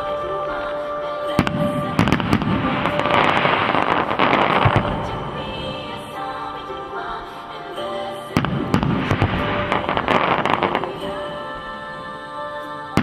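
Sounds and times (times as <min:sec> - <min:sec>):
firework cracks and crackling: 0:01.4 - 0:06.4, 0:08.4 - 0:11.8.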